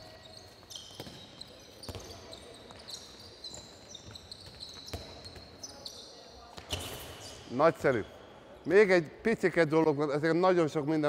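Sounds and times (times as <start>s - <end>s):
sports shoes squeaking: 0.0s - 8.5s.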